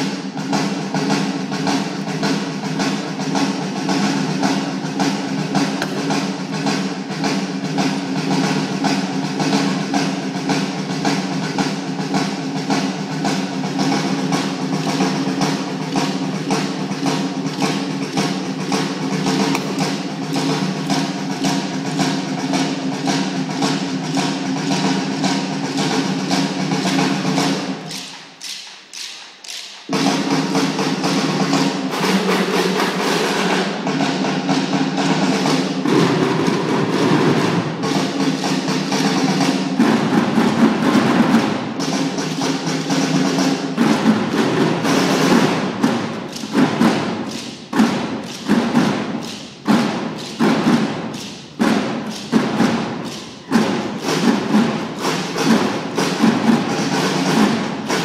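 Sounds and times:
snare drumline playing: 0.0s - 58.0s.

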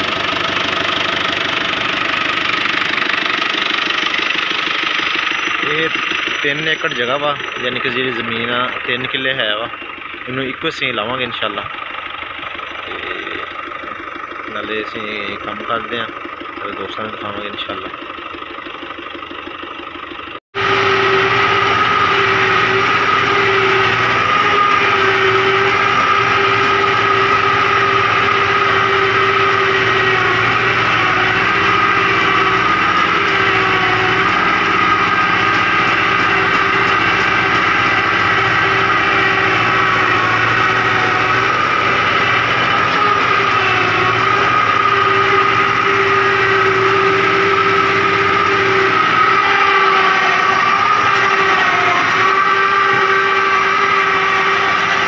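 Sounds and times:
tractor engine running: 0.0s - 55.0s
steady high tone: 3.9s - 11.2s, 20.6s - 55.0s.

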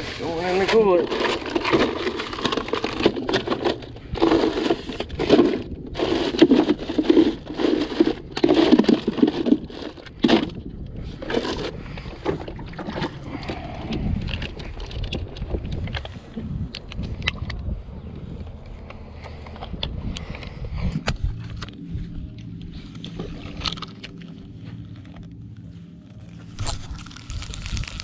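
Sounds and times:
fish scraping in ice cooler: 0.0s - 15.0s
low rumble: 0.0s - 28.0s.

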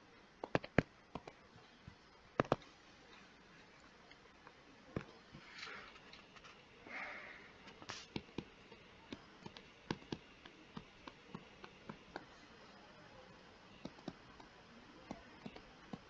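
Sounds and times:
stylus tapping on screen: 0.4s - 1.4s, 2.4s - 2.7s, 7.9s - 12.3s, 13.8s - 16.0s
soft hiss: 1.0s - 16.0s.

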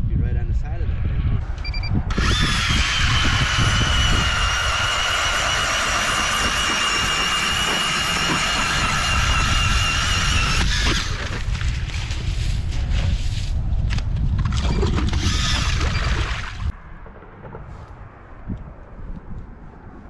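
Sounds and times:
ice auger motor whine: 2.1s - 11.4s.

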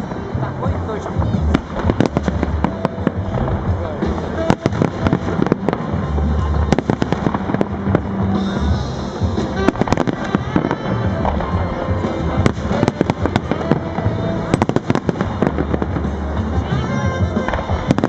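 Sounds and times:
fireworks bursting: 0.0s - 18.0s
music playing: 0.0s - 18.0s.

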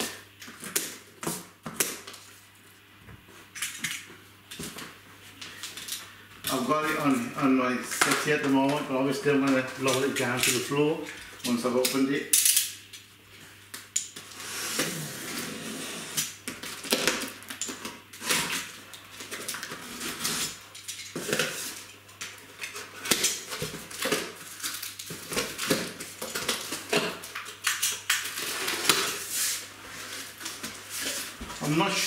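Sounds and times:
blade scraping through packing tape: 14.2s - 17.2s, 19.6s - 20.6s, 27.8s - 30.4s.

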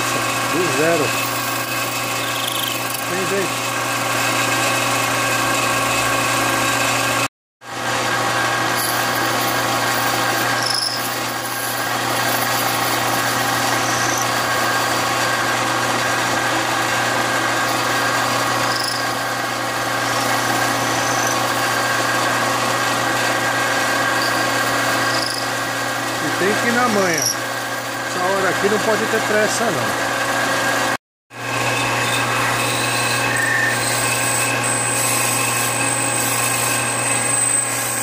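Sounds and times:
metal lathe humming: 0.0s - 38.0s
short high squeaks: 2.0s - 3.1s, 10.5s - 11.7s, 13.7s - 14.4s, 18.7s - 19.1s, 20.1s - 21.5s, 24.2s - 25.5s.

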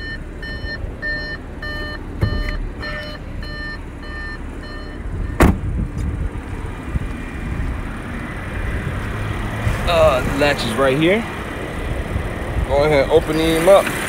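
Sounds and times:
car warning chime: 0.0s - 5.4s
dull thud: 5.4s - 5.8s.

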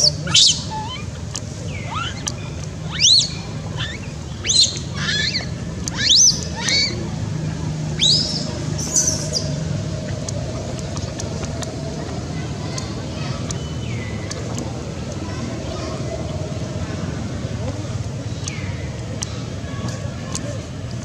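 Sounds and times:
baby monkey crying: 0.3s - 1.1s, 2.9s - 7.0s.

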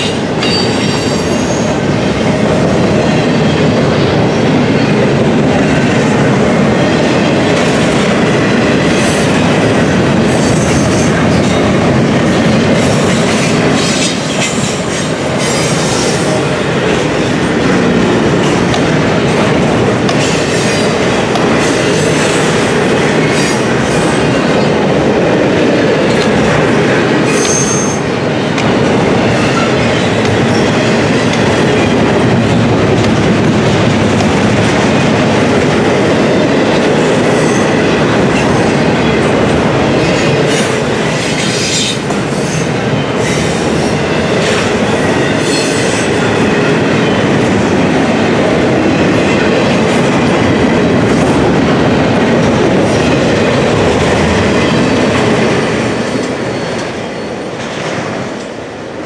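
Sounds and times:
train wheels rumbling on rails: 0.0s - 59.0s
high-pitched wheel squeals: 27.3s - 28.0s.

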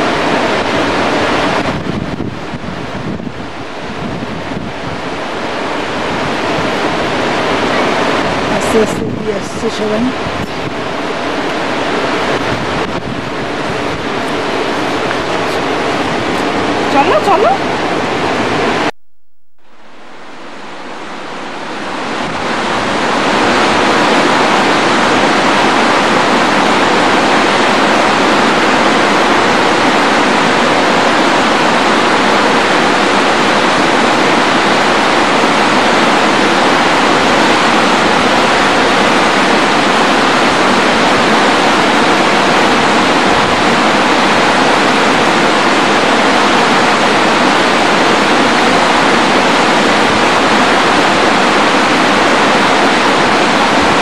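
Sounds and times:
rushing mountain torrent: 0.0s - 18.9s, 19.7s - 54.0s.

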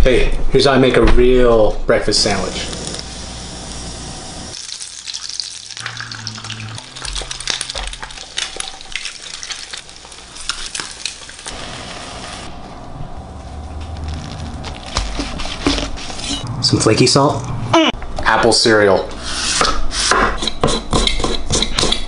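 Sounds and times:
food sizzling in pans: 2.7s - 12.5s.

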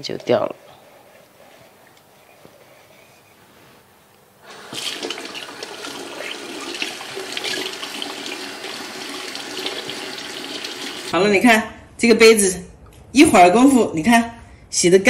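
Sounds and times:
tap water running into sink: 4.5s - 11.1s.

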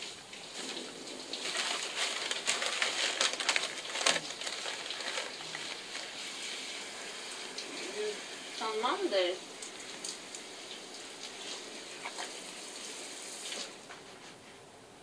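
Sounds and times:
faint hiss: 0.0s - 15.0s
gloved hand scrubbing: 1.4s - 6.5s.

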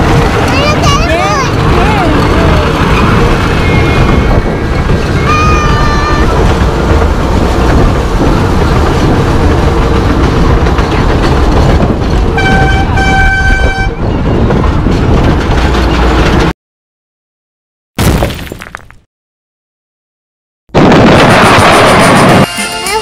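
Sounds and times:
miniature train rumbling: 0.0s - 16.5s
wind noise on microphone: 0.0s - 16.5s, 20.8s - 22.5s
train horn tooting: 5.2s - 6.4s, 12.4s - 14.0s.

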